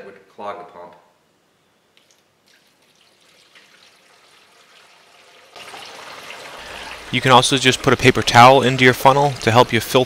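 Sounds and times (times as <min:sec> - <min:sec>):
liquid dripping: 0:02.0 - 0:10.0
liquid pouring into plastic funnel: 0:02.0 - 0:10.0.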